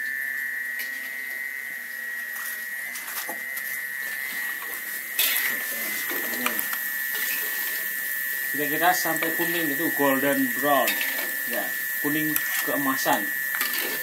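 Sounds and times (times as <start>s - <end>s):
high whine: 0.0s - 14.0s
steady hiss: 3.7s - 14.0s
hot oil sizzling in a wok: 4.1s - 14.0s
metal utensils clinking on wok: 10.8s - 11.4s, 13.6s - 14.0s.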